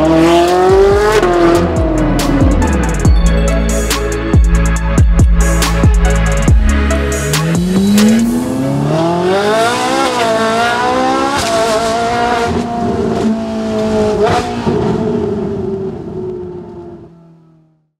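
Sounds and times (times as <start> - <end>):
car engine accelerating: 0.0 - 3.1, 6.4 - 17.6.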